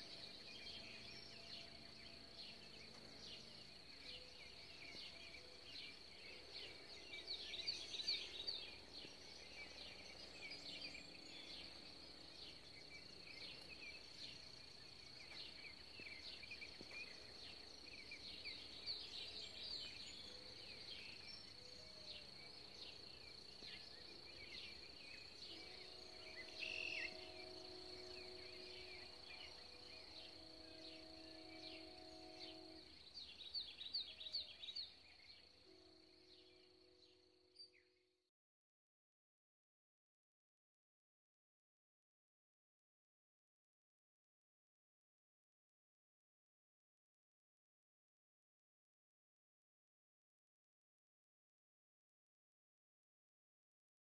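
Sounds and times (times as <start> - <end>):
faint steady drone: 0.0 - 38.0.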